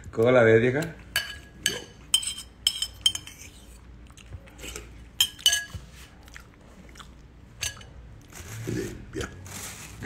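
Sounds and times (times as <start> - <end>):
metal spoon clinking on bowl: 1.1 - 3.5, 5.2 - 5.8.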